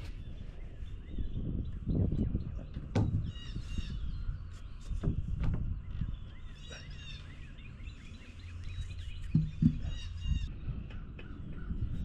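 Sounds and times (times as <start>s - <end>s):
wind rumbling on microphone: 0.0s - 12.0s
flock of birds calling: 6.3s - 12.0s
short knocks: 9.3s - 9.9s.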